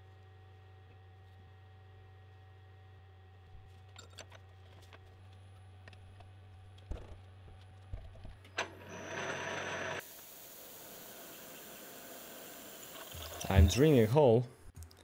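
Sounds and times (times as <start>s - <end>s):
low steady machine hum: 0.0s - 8.5s
drill cutting metal with whine: 8.7s - 12.9s.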